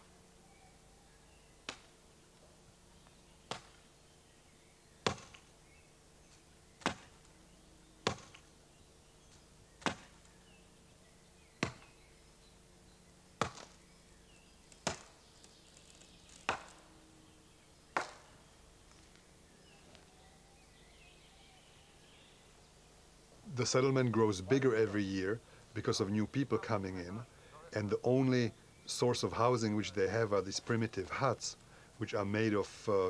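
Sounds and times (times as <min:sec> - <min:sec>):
axe chopping tree trunk: 0:03.5 - 0:03.8, 0:05.0 - 0:05.5, 0:06.8 - 0:07.2, 0:08.0 - 0:08.4, 0:09.8 - 0:10.2, 0:11.6 - 0:11.9, 0:13.4 - 0:13.8, 0:14.8 - 0:15.2, 0:16.5 - 0:16.8, 0:18.0 - 0:18.3.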